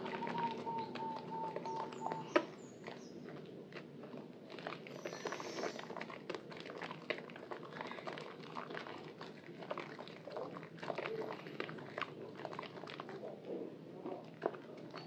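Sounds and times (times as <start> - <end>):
wet soap squelching by hand: 0.0 - 13.5.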